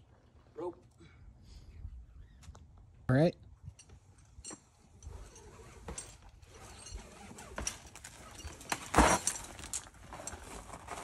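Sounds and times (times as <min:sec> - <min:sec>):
climbing gear clicks: 0:03.7 - 0:10.6.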